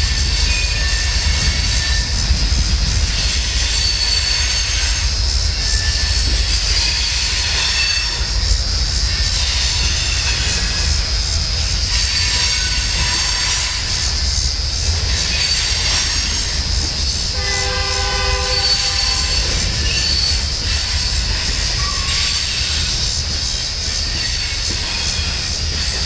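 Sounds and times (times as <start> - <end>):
wheel squeal: 0.0 - 2.5, 3.1 - 26.0
train cars rumbling on bridge: 0.0 - 26.0
locomotive horn blast: 17.3 - 19.3.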